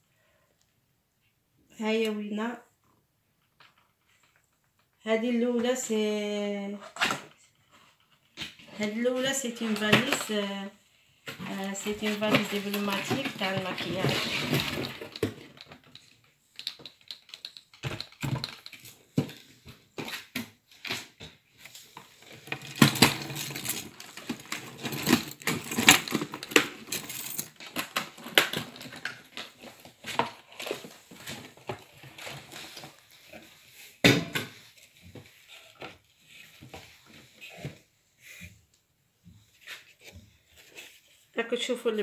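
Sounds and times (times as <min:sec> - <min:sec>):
plastic case clicks and rustling: 0:12.0 - 0:19.4.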